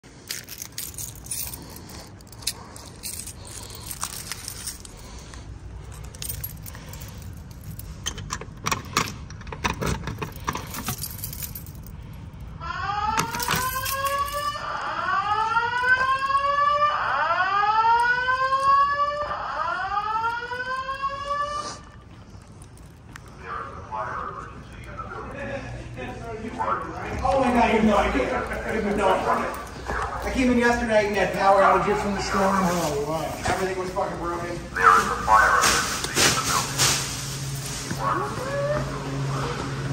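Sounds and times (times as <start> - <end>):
clicks and key rattling: 0.2 - 12.1, 13.2 - 14.6
whooping evacuation alarm tone: 12.6 - 21.8, 38.0 - 39.3.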